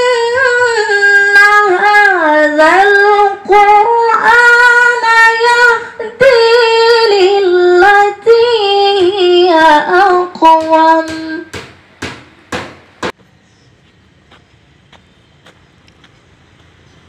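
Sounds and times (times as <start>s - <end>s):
woman reciting melodically: 0.0s - 11.6s.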